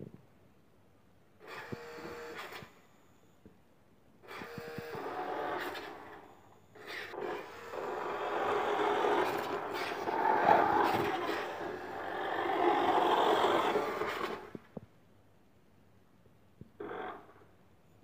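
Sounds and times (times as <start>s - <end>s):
toy car motor running: 6.8s - 14.6s
plastic wheels rolling on tile: 7.1s - 14.8s.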